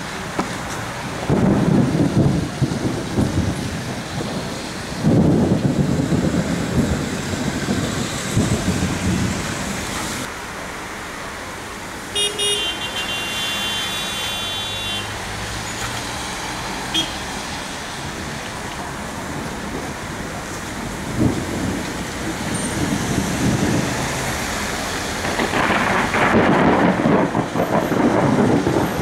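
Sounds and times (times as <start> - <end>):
thunder rumbling: 0.0 - 10.3, 16.3 - 29.0
steady rain: 0.0 - 29.0.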